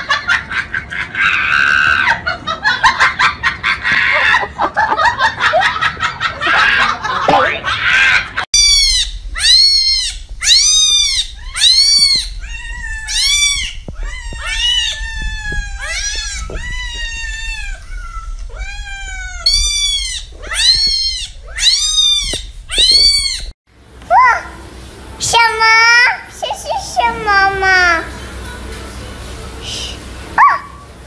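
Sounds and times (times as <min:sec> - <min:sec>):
cat meowing: 0:08.6 - 0:23.5.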